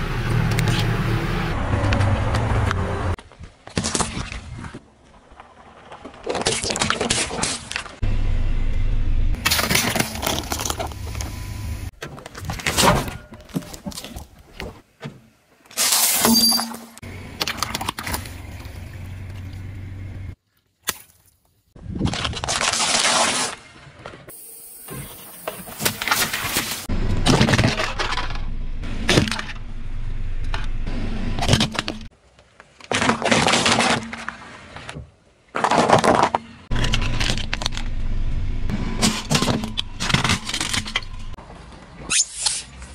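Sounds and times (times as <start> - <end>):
low vehicle rumble: 0.0 - 3.2, 8.0 - 12.0, 17.0 - 20.4, 26.8 - 32.1, 36.6 - 41.9
crackles and cracks: 3.2 - 8.0, 31.4 - 38.4
low engine hum: 8.0 - 9.4, 17.0 - 20.4, 36.7 - 41.4
car tyres crushing objects: 9.4 - 11.3, 25.4 - 41.4.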